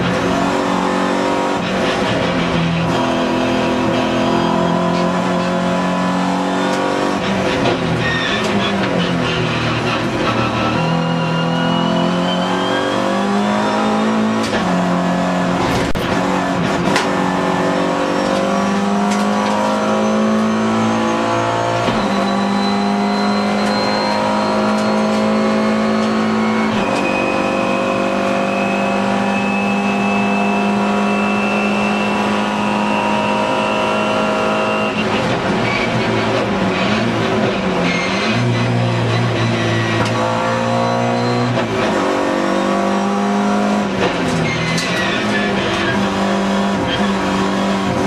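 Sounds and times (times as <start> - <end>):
race car engine accelerating: 0.0 - 48.0.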